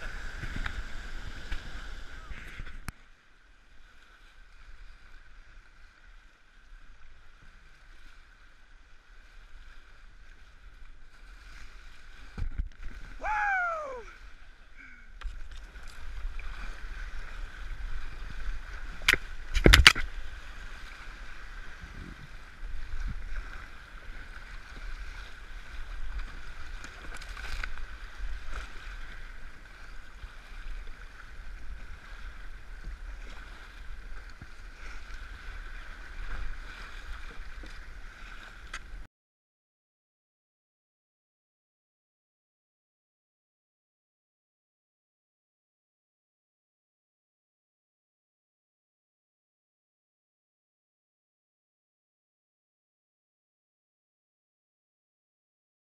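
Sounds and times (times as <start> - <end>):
paddle splashes: 0.0 - 39.1
water rushing and splashing: 0.0 - 39.1
person crying out: 13.2 - 14.2.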